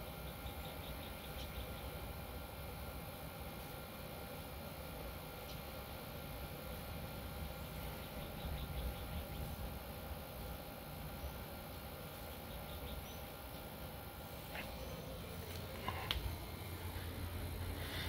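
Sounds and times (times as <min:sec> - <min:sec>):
faint chirping: 0:00.0 - 0:02.2, 0:07.5 - 0:10.0, 0:11.0 - 0:18.0.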